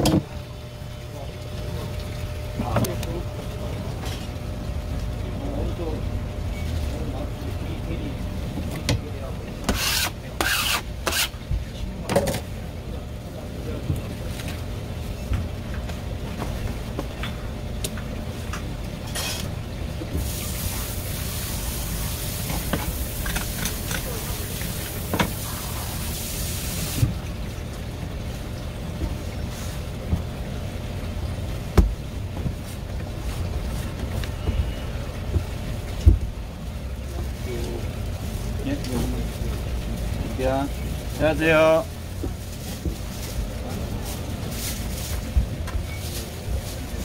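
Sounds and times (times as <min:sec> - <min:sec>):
steady low hum: 0:00.0 - 0:47.0
steady hiss: 0:20.2 - 0:27.1.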